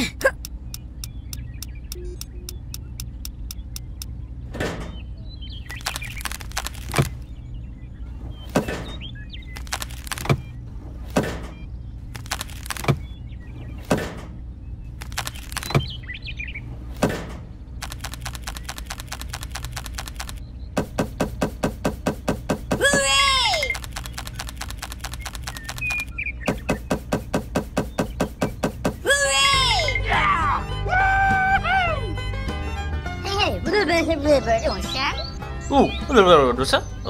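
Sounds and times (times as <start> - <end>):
low hum: 0.0 - 33.2
fast clicks: 5.6 - 7.3, 9.4 - 10.4, 12.1 - 13.0, 14.9 - 16.0, 17.8 - 29.1
sharp knocks: 17.0 - 23.1, 23.8 - 29.1.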